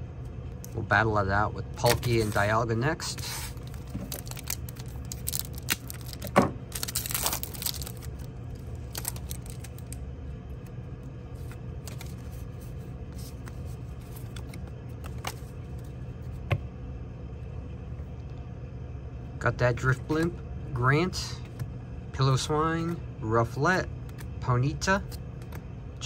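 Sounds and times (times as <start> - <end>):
foil wrapper crinkling: 1.8 - 10.0.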